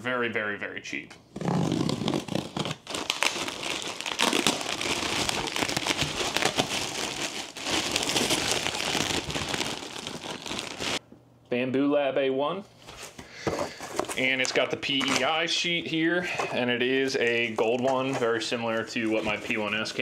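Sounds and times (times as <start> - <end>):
plastic packaging crinkling: 1.6 - 11.0.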